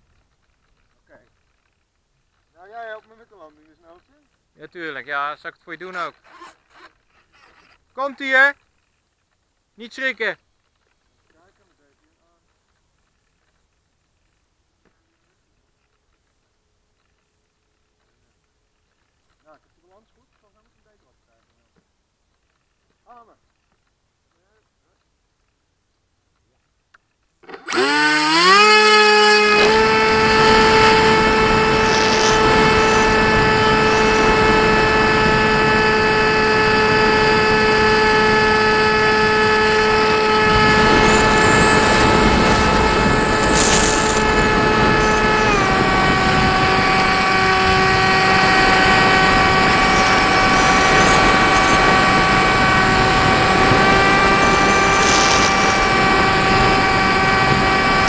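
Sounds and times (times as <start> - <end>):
electric motor and propeller whine: 27.4 - 58.0
air rushing: 39.4 - 57.6.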